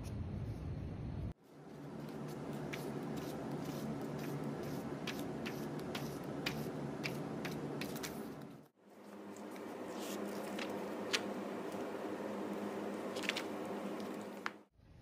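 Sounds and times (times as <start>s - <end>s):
paper sheets crinkling: 1.6s - 14.6s.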